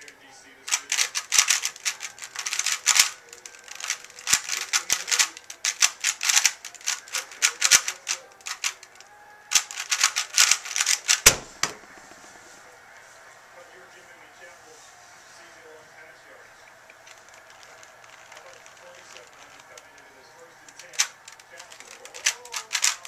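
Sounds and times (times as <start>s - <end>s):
plastic cube clacking: 0.7s - 12.2s, 16.9s - 23.0s
cube thud on table: 9.6s - 12.3s.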